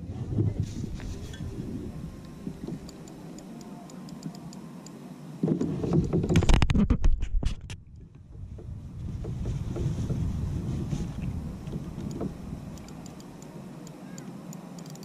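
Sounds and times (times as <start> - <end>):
rubbing and knocking on camera: 5.4 - 12.4.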